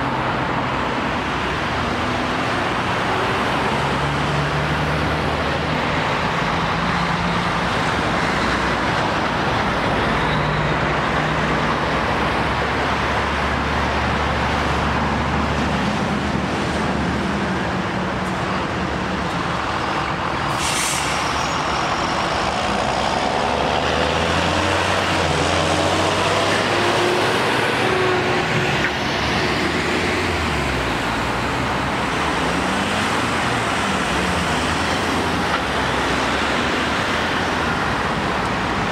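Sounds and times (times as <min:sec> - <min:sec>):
lorry diesel engine: 0:00.0 - 0:38.9
air brake hiss: 0:20.5 - 0:21.5
cars accelerating away: 0:22.5 - 0:37.2.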